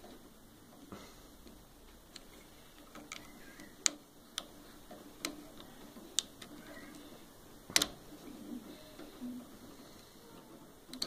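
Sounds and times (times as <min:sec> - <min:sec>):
small plastic clicks: 0:01.4 - 0:08.0.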